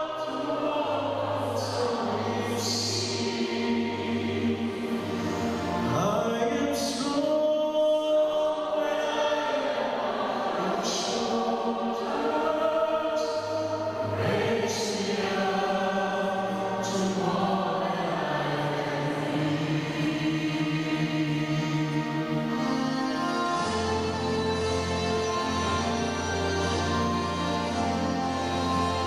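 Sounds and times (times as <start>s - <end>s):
man singing into a microphone: 0.0s - 3.6s, 5.9s - 29.0s
mixed choir singing: 0.0s - 29.0s.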